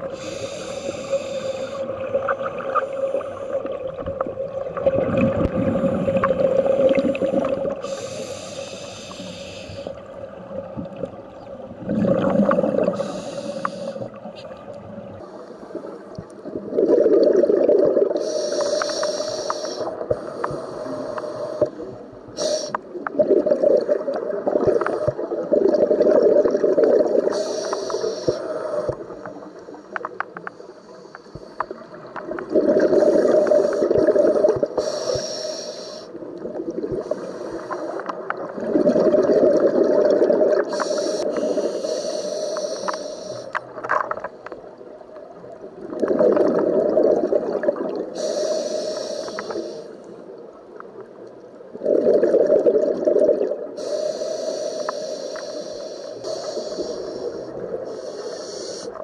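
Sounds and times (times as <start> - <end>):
regulator hiss: 0.0 - 2.1, 5.6 - 10.0, 12.8 - 14.2, 18.2 - 22.9, 27.3 - 30.0, 33.0 - 36.2, 37.0 - 38.1, 40.7 - 43.6, 48.2 - 50.2, 53.8 - 59.0
gurgling exhaled bubbles: 3.7 - 8.0, 10.7 - 13.4, 16.4 - 18.6, 22.9 - 27.4, 31.8 - 34.8, 38.2 - 41.6, 45.8 - 48.2, 51.7 - 53.8.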